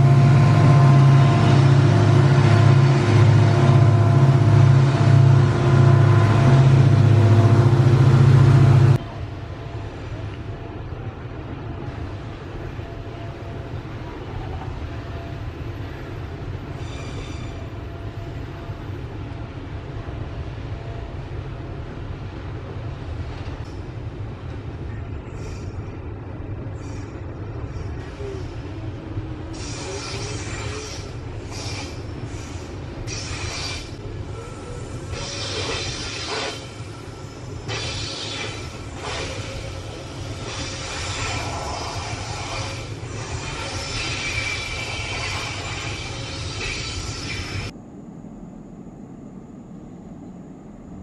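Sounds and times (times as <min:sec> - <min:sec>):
freight train rumbling past: 0:00.0 - 0:51.0
high-pitched wheel squeal: 0:16.8 - 0:17.7.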